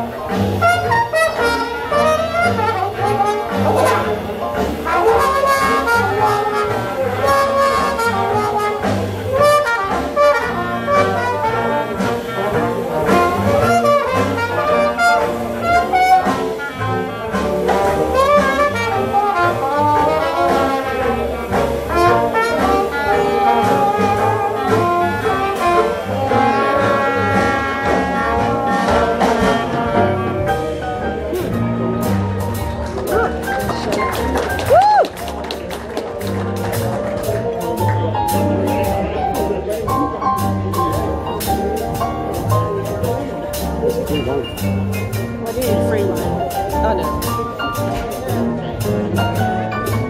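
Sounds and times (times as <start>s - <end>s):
trumpet: 0.0s - 32.6s
banjo: 0.0s - 34.6s, 35.3s - 50.0s
double bass: 0.0s - 50.0s
drums: 0.0s - 50.0s
trombone: 0.0s - 50.0s
clarinet: 0.3s - 34.0s.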